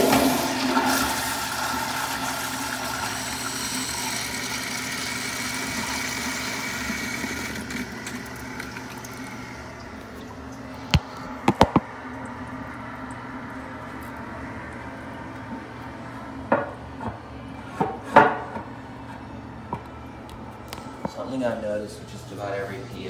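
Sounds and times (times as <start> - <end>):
toilet flushing: 0.0 - 16.8.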